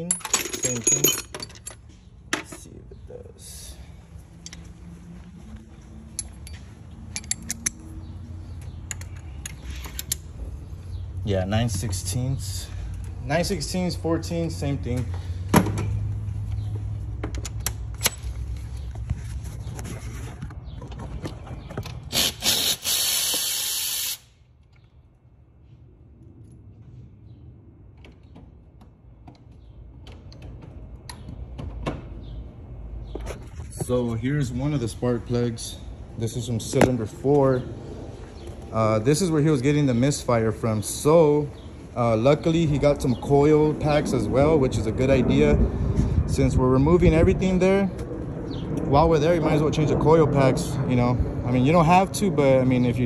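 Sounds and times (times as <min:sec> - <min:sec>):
metal hand tools clinking: 0:00.0 - 0:01.8
low rumble: 0:41.7 - 0:53.0.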